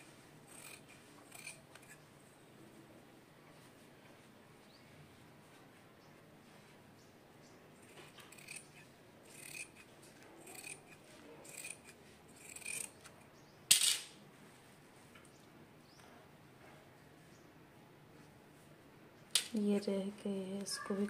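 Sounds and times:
scissors snipping cloth: 0:07.8 - 0:13.0.

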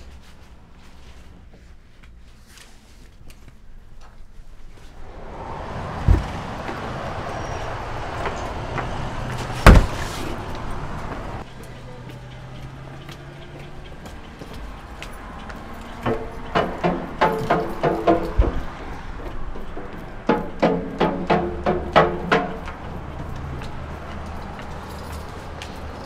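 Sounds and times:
rushing noise: 0:05.0 - 0:11.5
heavy thumps: 0:05.1 - 0:11.4.

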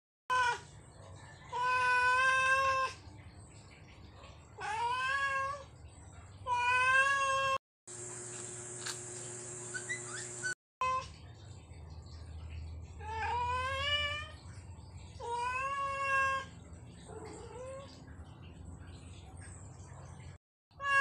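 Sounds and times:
cat meowing loudly: 0:20.8 - 0:21.0.

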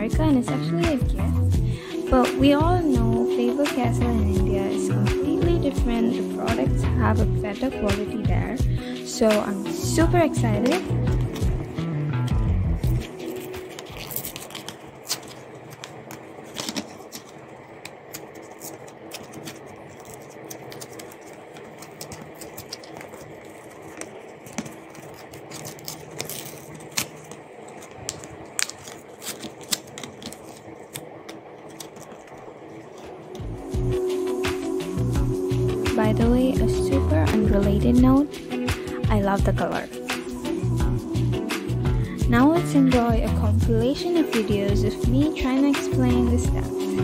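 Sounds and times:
plastic and card crackling: 0:10.5 - 0:33.7.

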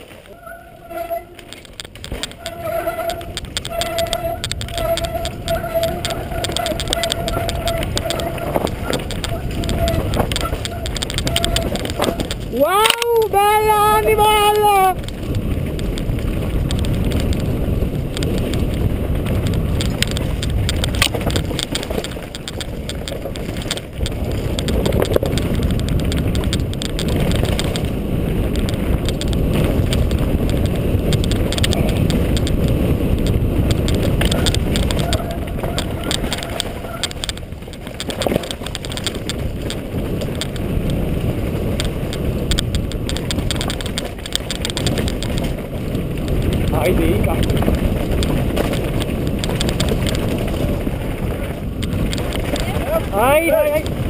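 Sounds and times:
bike rattling and knocking: 0:00.0 - 0:54.0
tyres rumbling on stones: 0:00.0 - 0:54.0.

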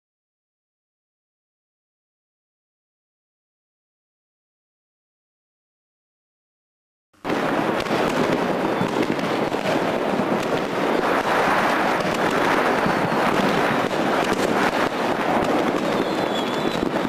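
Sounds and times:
fireworks crackling and banging: 0:07.2 - 0:17.0.

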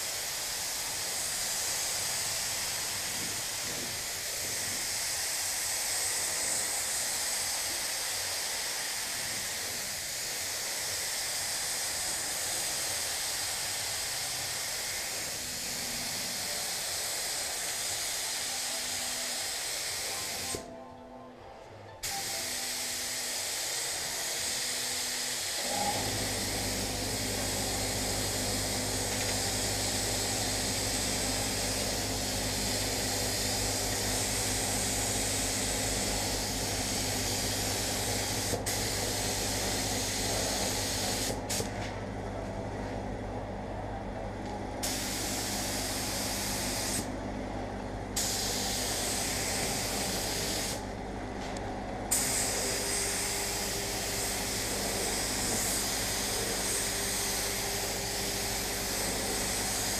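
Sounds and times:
spray gun air hiss: 0:00.0 - 0:20.7, 0:22.0 - 0:41.8, 0:44.8 - 0:47.1, 0:48.1 - 0:50.9, 0:52.1 - 0:59.9
low machine hum: 0:18.3 - 0:59.9.

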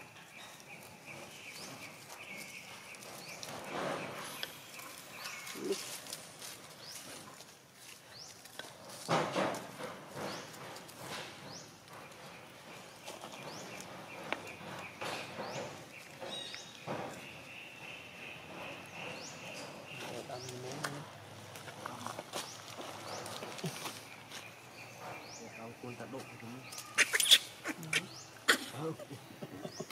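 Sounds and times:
rustling on dry leaves: 0:00.0 - 0:29.9.

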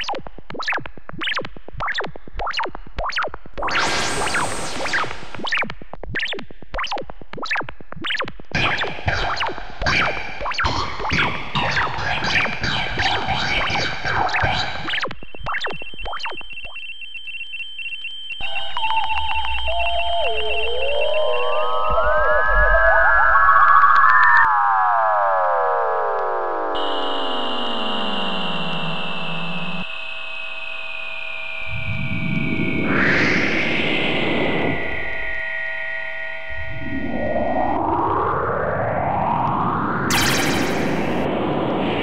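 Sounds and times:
computer-like bleeping: 0:00.0 - 0:09.5, 0:10.4 - 0:22.9, 0:40.1 - 0:41.3
quick electronic blips: 0:00.0 - 0:17.0, 0:40.1 - 0:41.3
steady electronic tone: 0:12.4 - 0:23.8, 0:26.7 - 0:38.2, 0:40.1 - 0:42.0
hum with wavering pitch glides: 0:18.4 - 0:25.6, 0:31.5 - 0:39.1.

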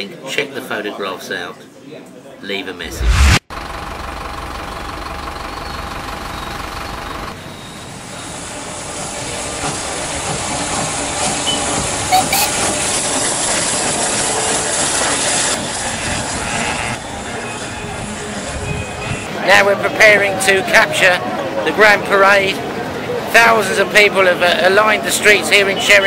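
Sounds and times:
bus engine rumbling: 0:02.9 - 0:13.2, 0:15.7 - 0:19.5
steam locomotive hissing: 0:07.9 - 0:19.3.

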